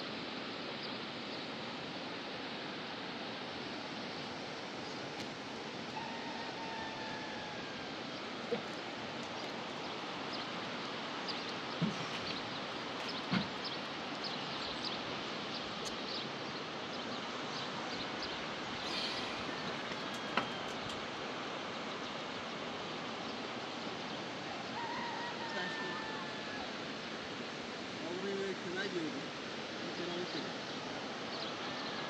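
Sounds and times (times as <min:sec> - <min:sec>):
rushing water: 0:00.0 - 0:32.0
light ticks: 0:15.8 - 0:16.0.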